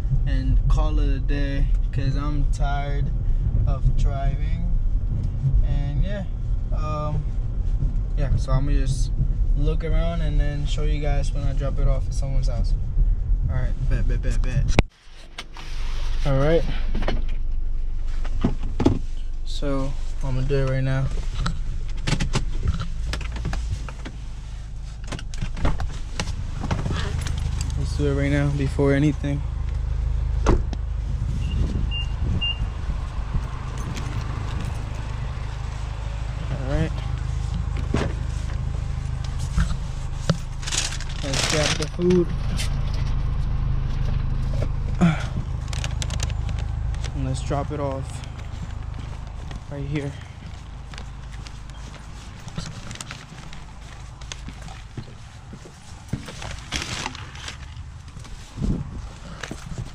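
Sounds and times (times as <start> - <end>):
low outdoor rumble: 0.0 - 59.9
paper bag rustling: 38.2 - 42.2, 45.5 - 59.9
footsteps on concrete: 48.2 - 56.6.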